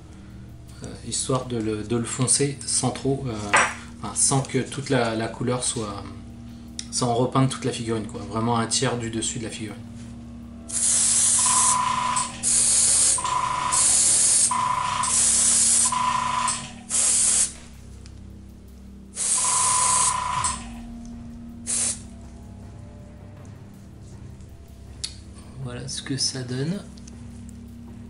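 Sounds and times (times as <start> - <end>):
airbrush spraying hiss: 10.7 - 17.7, 19.1 - 20.7, 21.6 - 22.2.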